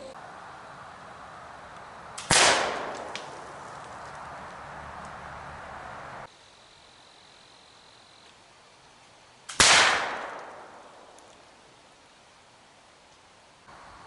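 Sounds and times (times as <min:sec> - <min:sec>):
rifle shot: 0:02.2 - 0:03.4, 0:09.5 - 0:11.1.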